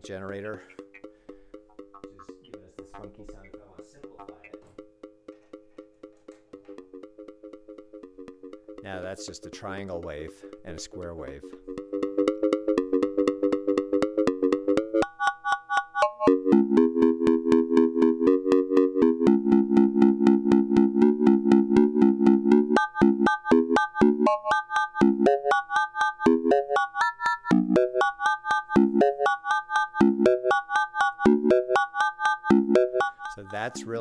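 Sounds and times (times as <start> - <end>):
modular synthesizer pulsing notes: 0.0 - 34.0.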